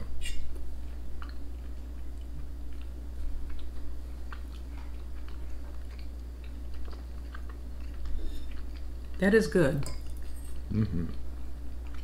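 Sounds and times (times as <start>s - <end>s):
people chewing: 0.5s - 12.0s.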